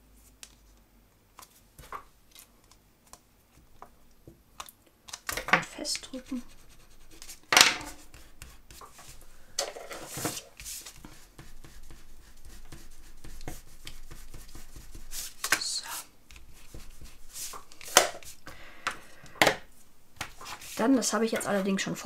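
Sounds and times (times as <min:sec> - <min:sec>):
hands rubbing paper: 0:05.8 - 0:09.3, 0:10.1 - 0:18.5, 0:20.2 - 0:22.0.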